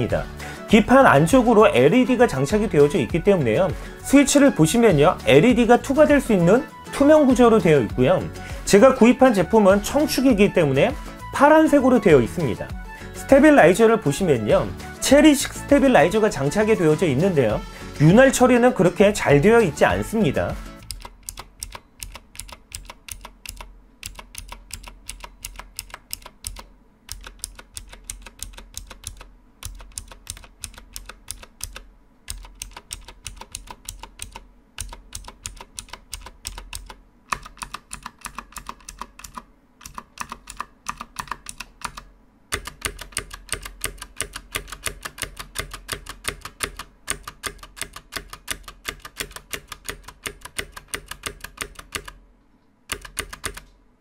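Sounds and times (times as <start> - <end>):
fast typing on clicky keyboard: 20.8 - 52.2, 52.9 - 53.7.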